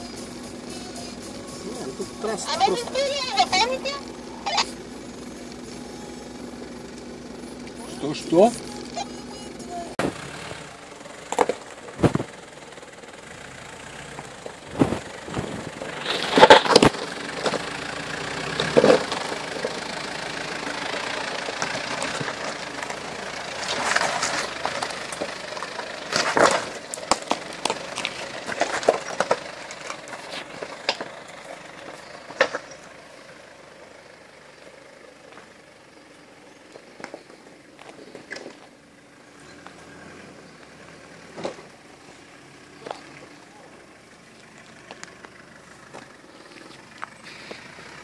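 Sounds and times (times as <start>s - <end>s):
car engine running: 0.0s - 48.0s
tyres and body knocking and crunching: 11.1s - 12.8s, 14.1s - 20.7s, 21.4s - 33.0s, 40.6s - 41.9s.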